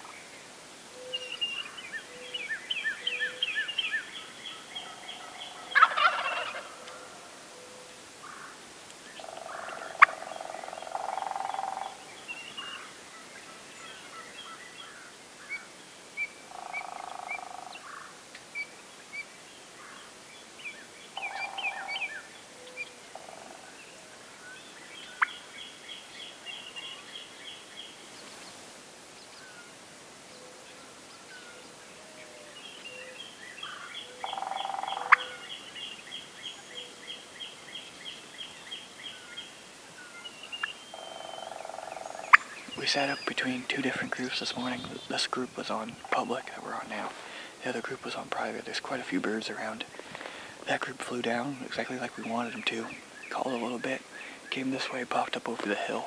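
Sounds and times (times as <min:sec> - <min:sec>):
songbirds chirping and trilling: 0:00.0 - 0:56.0
turkeys gobbling: 0:04.8 - 0:07.3, 0:09.2 - 0:12.1, 0:33.7 - 0:35.4, 0:40.6 - 0:52.9.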